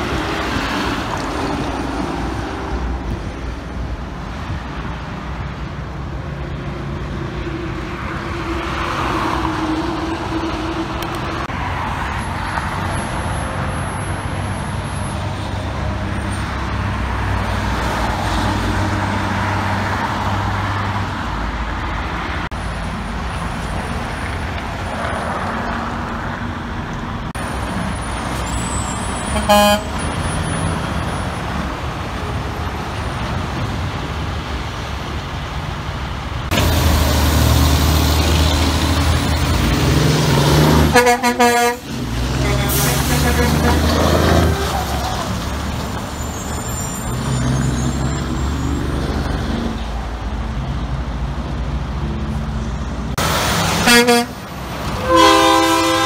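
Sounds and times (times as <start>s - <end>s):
diesel dump trucks running: 0.0s - 56.0s
loud truck engine: 0.0s - 56.0s
traffic noise: 0.0s - 56.0s
horn toot: 29.2s - 30.0s, 40.7s - 45.0s, 53.8s - 54.4s, 55.0s - 56.0s.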